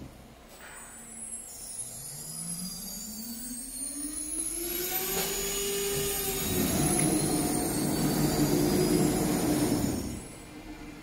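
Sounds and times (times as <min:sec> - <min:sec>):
cnc router spindle whine: 0:01.8 - 0:11.0
rushing mechanical noise: 0:02.2 - 0:11.0.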